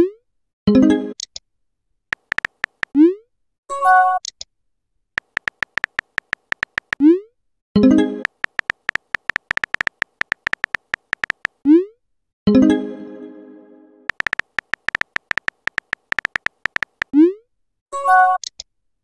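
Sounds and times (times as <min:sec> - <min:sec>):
keyboard tap clicks: 0:02.2 - 0:02.9, 0:05.2 - 0:07.0, 0:08.2 - 0:11.6, 0:14.1 - 0:17.1.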